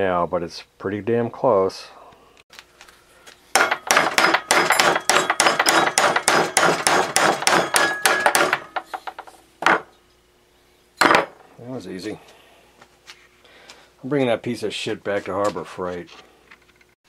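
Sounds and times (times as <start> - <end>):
hammer striking steel pulley: 3.6 - 9.9.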